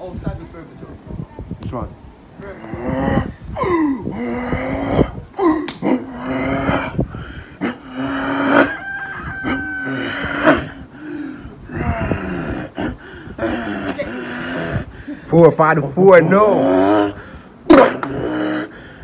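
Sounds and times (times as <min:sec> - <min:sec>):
man imitating truck engine: 0:02.5 - 0:08.8, 0:11.6 - 0:14.9, 0:16.3 - 0:18.8.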